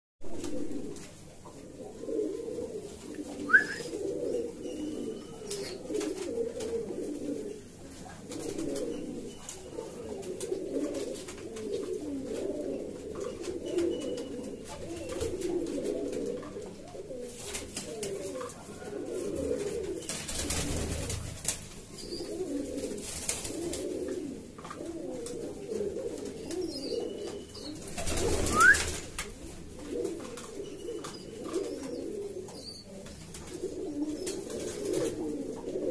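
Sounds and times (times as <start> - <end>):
pigeons cooing: 0.3 - 35.9.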